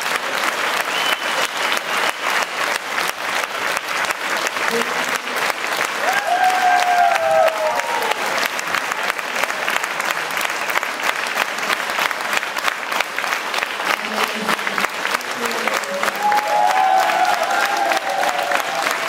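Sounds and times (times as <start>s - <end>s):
audience applauding: 0.0s - 19.0s
person cheering: 6.0s - 8.3s, 16.1s - 19.0s.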